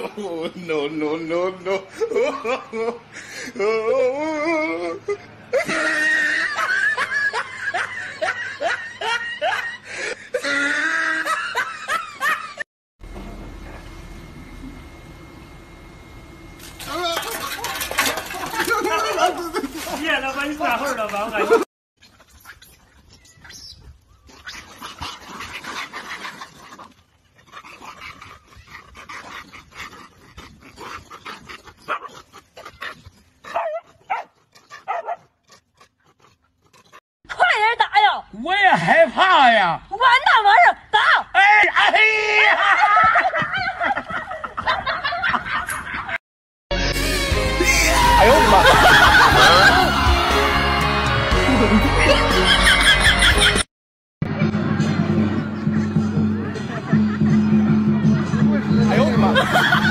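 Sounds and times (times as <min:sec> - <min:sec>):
person laughing hard: 0:01.8 - 0:12.6, 0:47.5 - 0:50.4, 0:51.4 - 0:53.6, 0:58.8 - 0:59.9
dog whining and yipping: 0:30.8 - 0:37.0.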